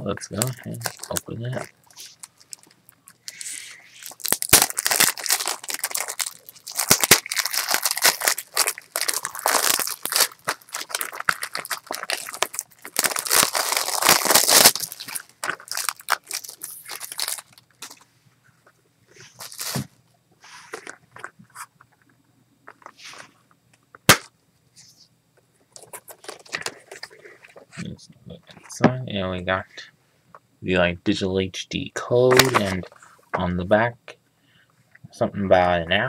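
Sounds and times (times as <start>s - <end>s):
shrink wrap crinkling and tearing: 0.2s - 18.0s, 19.2s - 19.9s, 25.7s - 27.7s, 32.3s - 33.0s.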